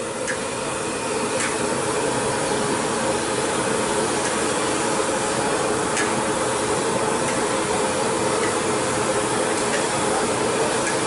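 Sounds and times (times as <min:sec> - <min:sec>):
gas burners and frying oil roar: 0:00.0 - 0:11.0.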